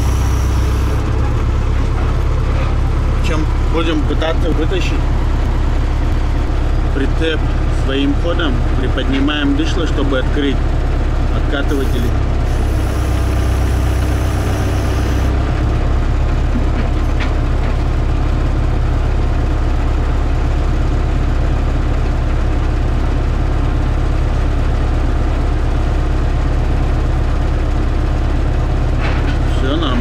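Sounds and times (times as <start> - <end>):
tractor diesel engine running: 0.0 - 30.0.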